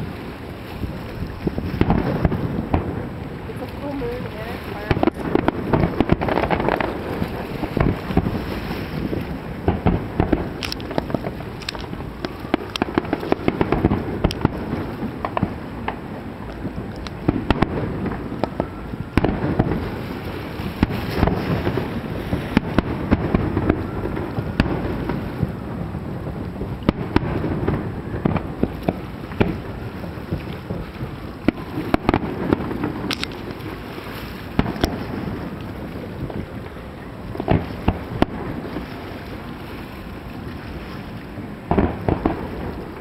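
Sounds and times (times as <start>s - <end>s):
fireworks bursting and crackling: 0.0s - 43.0s.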